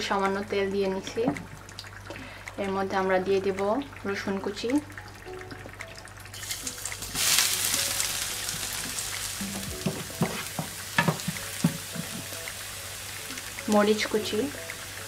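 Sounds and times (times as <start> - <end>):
garlic sizzling in hot oil: 0.0 - 15.0.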